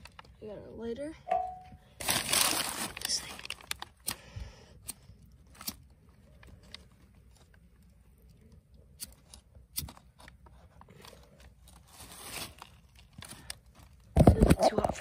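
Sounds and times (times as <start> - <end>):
fire crackling in kindling: 2.5 - 6.8.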